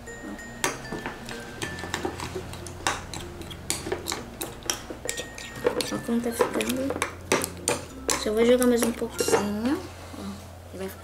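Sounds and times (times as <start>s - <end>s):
slime being stirred: 0.9s - 10.2s
spoon scraping a glass bowl: 1.6s - 6.8s.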